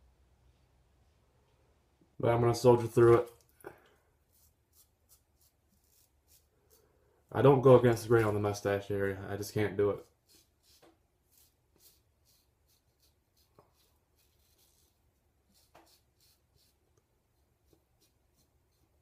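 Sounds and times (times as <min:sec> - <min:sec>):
razor scraping stubble: 0:04.3 - 0:08.7, 0:09.4 - 0:16.8, 0:17.6 - 0:19.0.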